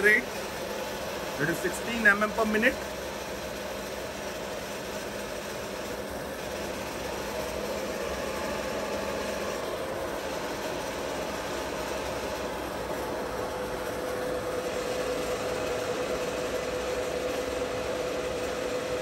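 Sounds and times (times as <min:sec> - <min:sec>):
milling machine running: 0:00.0 - 0:19.0.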